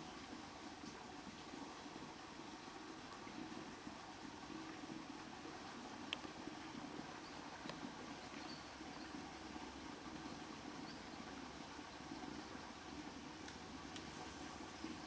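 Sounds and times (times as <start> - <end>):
insects chirring: 0.0 - 15.0
faint click: 6.1 - 6.3.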